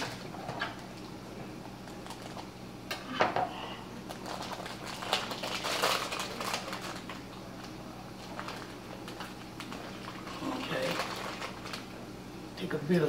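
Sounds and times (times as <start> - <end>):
plastic package crinkling: 1.9 - 2.5, 4.0 - 12.0.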